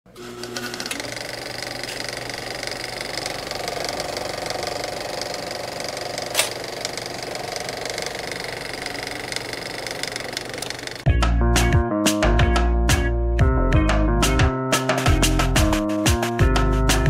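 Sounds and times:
small machine clattering: 0:00.4 - 0:11.1.

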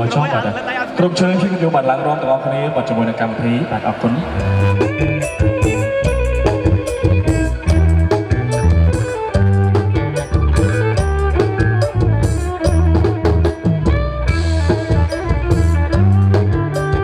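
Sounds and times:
band music: 0:00.0 - 0:17.0
drum kit beat: 0:04.4 - 0:17.0.

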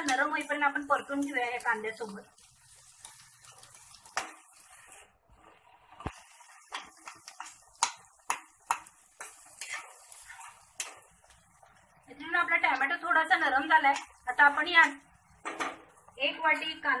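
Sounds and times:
metal spatula scraping a pan: 0:00.0 - 0:11.8
faint sizzle of frying: 0:00.0 - 0:17.0.

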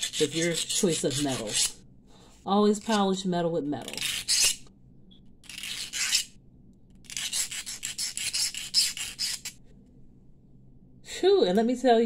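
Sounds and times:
metal file rasping on wire: 0:00.0 - 0:01.8, 0:05.4 - 0:06.3, 0:07.0 - 0:09.6.

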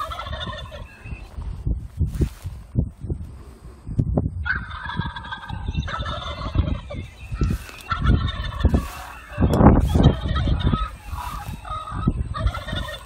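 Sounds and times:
turkeys gobbling: 0:00.0 - 0:01.3, 0:04.4 - 0:13.0
low buffeting noise: 0:00.0 - 0:13.0.

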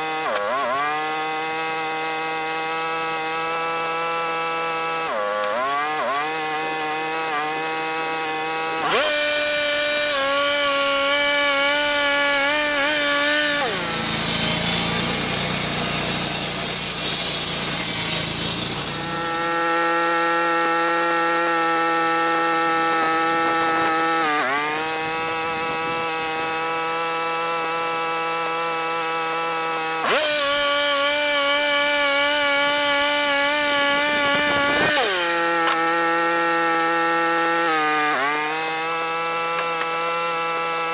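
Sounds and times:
saw rasping through wood: 0:00.0 - 0:40.9
sawmill engine running: 0:00.0 - 0:40.9.

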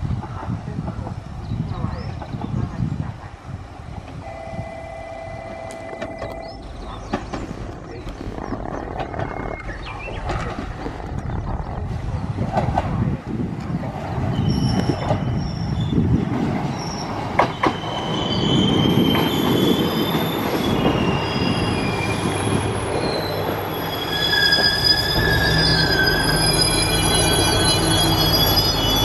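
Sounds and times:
railcar engine low hum: 0:00.0 - 0:29.0
brakes squealing: 0:17.7 - 0:29.0.

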